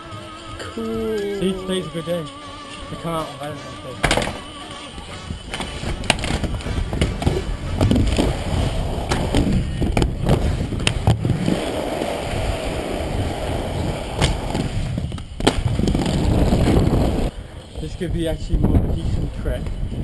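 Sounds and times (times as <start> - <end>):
skates clacking on ground: 4.0 - 12.2
skate wheels rumbling on concrete: 4.0 - 20.0.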